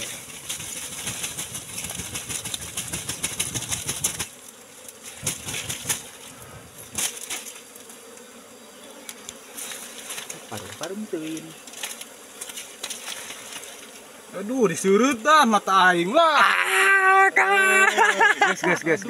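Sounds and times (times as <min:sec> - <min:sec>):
dense rustle and crackle: 0:00.0 - 0:08.0, 0:09.5 - 0:14.1
honeybees buzzing: 0:00.0 - 0:19.0.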